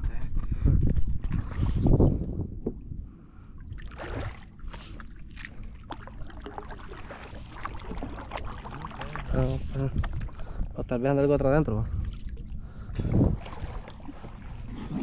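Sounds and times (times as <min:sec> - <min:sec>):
water lapping: 0:03.5 - 0:15.0
swimmer splashing: 0:03.9 - 0:10.4, 0:13.3 - 0:15.0.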